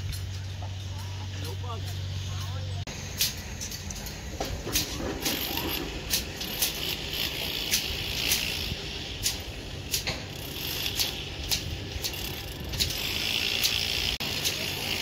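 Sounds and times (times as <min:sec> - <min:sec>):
wire twisting rasps: 0:03.1 - 0:15.0
metallic clicks and snips: 0:03.2 - 0:05.4, 0:06.1 - 0:08.6, 0:09.2 - 0:13.8.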